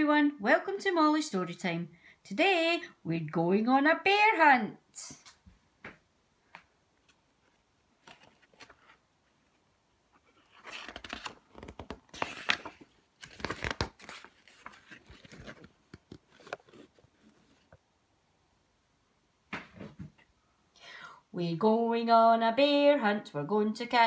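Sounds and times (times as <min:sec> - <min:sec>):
book pages rustling: 0:07.0 - 0:17.8.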